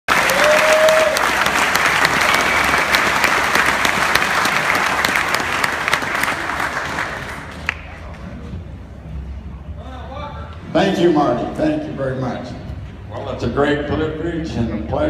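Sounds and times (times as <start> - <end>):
audience applauding: 0.1 - 8.2.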